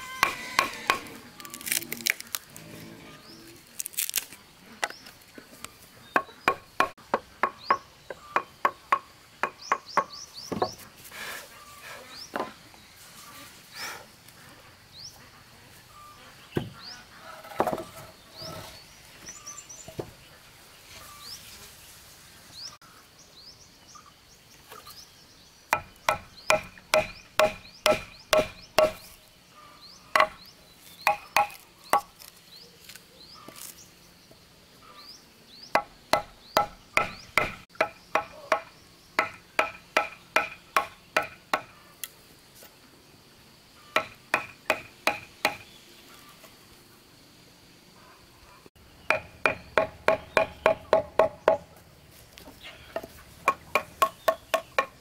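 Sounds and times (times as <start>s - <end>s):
hammer striking chisel into wood: 25.8s - 29.0s, 30.2s - 30.4s, 31.1s - 32.1s, 35.8s - 41.7s, 44.0s - 45.6s, 49.1s - 51.6s.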